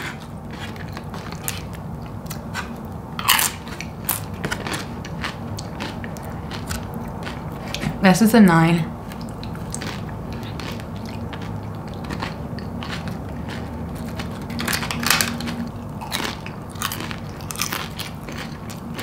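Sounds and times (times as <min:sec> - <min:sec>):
chewing crunchy chips: 0:00.0 - 0:08.0, 0:09.0 - 0:19.0.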